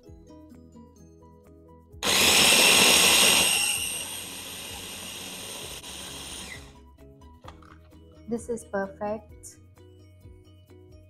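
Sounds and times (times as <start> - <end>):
food processor motor grinding: 2.0 - 6.8.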